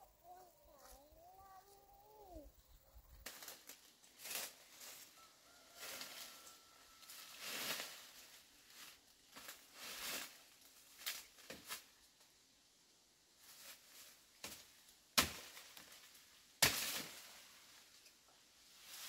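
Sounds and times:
rustling and crunching: 2.8s - 12.2s.

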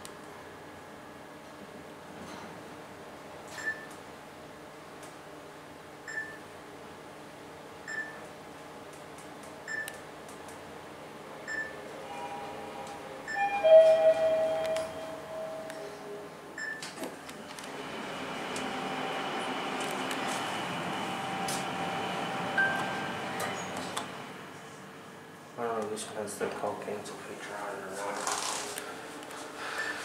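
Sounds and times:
ambient noise: 10.7s - 30.0s
elevator arrival chime: 11.5s - 16.8s, 17.9s - 24.0s
short electronic pip: 12.0s - 16.1s
elevator door sliding open: 12.1s - 15.8s, 17.7s - 24.4s.

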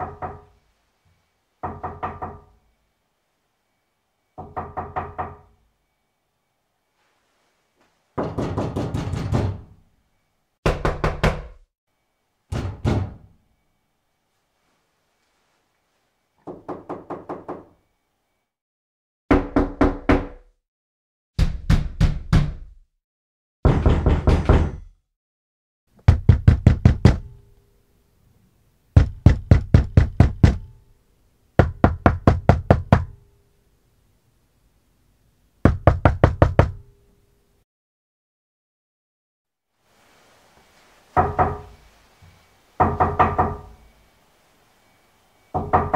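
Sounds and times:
knocking on a door: 8.2s - 9.7s, 10.6s - 11.6s, 12.5s - 13.3s, 16.4s - 17.7s, 19.3s - 20.4s, 21.4s - 22.8s, 23.6s - 24.9s, 26.0s - 27.3s, 29.0s - 30.7s, 31.6s - 33.2s, 35.6s - 36.8s, 41.2s - 41.7s, 42.8s - 43.8s, 45.6s - 45.9s.

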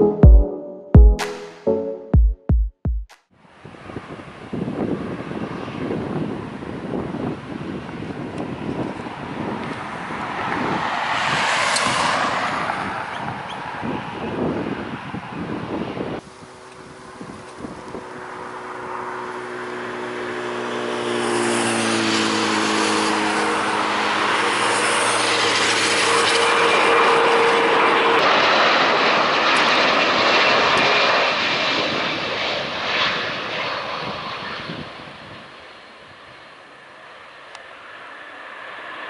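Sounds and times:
jet engines on approach: 3.4s - 39.0s
engine whine sliding down: 18.9s - 29.1s.

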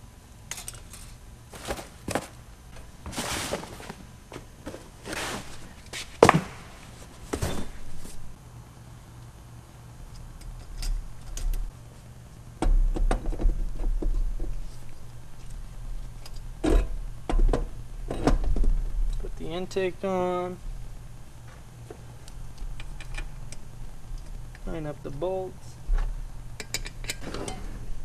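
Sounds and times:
parts rustling and knocking: 0.5s - 8.4s.

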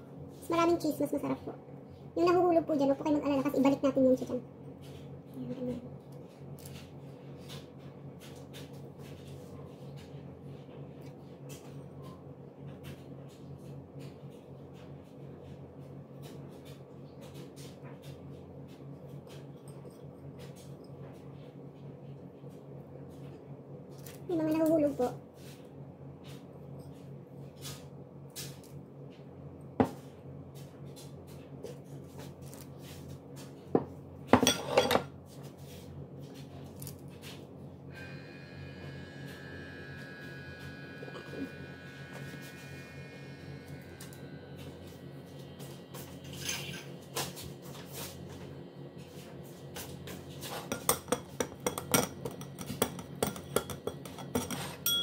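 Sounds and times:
steady low hum: 0.0s - 55.0s
dishes and utensils clattering: 34.4s - 35.1s, 50.5s - 55.0s.

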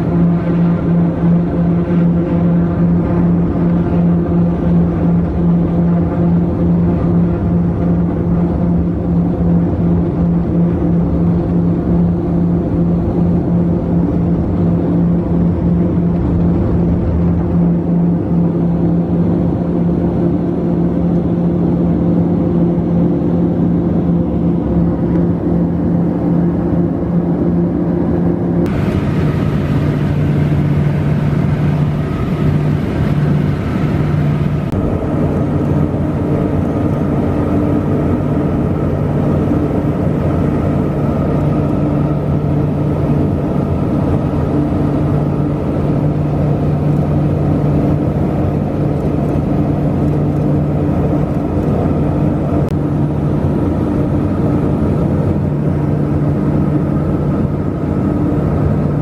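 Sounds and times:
turboprop engines droning in cabin: 0.0s - 59.0s.

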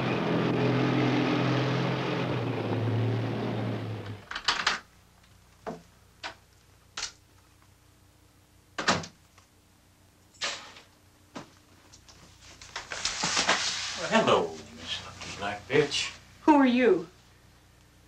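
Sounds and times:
door clicks and knocks: 8.8s - 9.2s.

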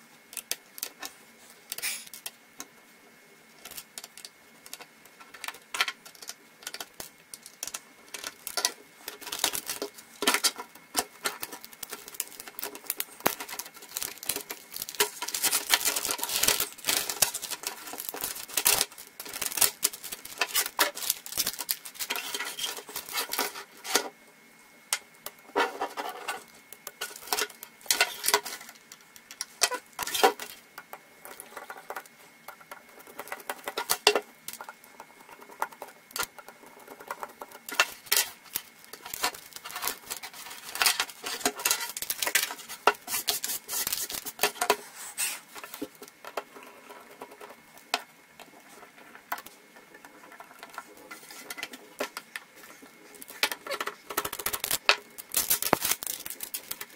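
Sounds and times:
laptop parts clicking and rattling: 3.6s - 24.0s, 25.5s - 44.8s, 48.4s - 56.9s.

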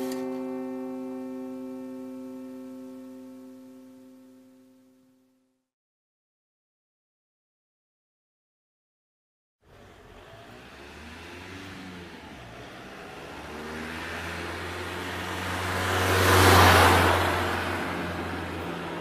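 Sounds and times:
car driving past: 9.7s - 19.0s.

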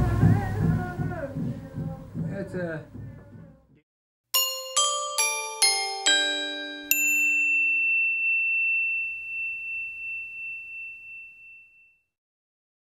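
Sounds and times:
high chime notes ringing: 4.4s - 12.0s.

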